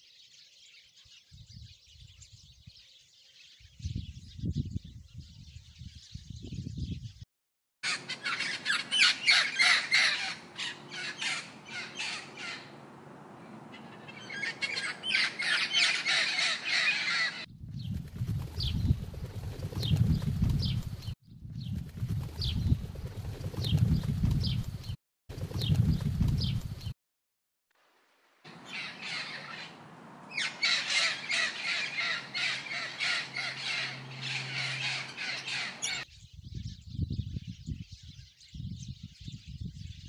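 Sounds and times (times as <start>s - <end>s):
macaws squawking: 7.8s - 12.8s, 13.7s - 17.5s, 28.5s - 36.0s
pigeons chirping: 7.9s - 12.8s, 13.7s - 21.2s, 22.1s - 26.9s, 28.5s - 36.1s.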